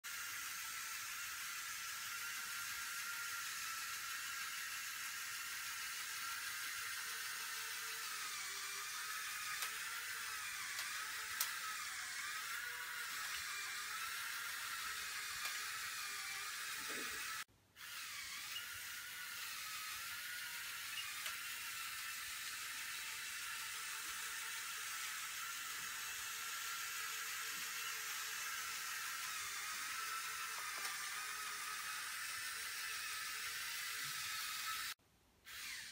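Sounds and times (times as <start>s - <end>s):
toy car motors whirring: 0.0s - 35.9s
small clicks: 9.5s - 11.8s.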